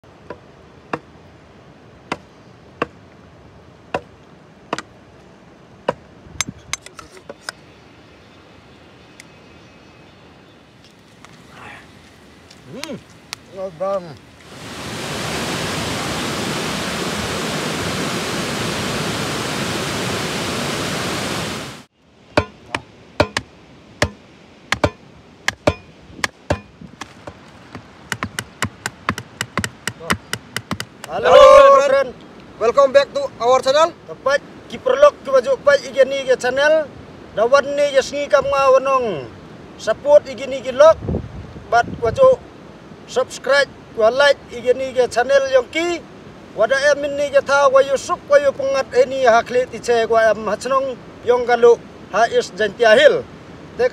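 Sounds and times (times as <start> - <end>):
waterfall rushing: 11.2 - 23.4, 27.1 - 37.0
stakes hammered into ground: 22.4 - 31.2.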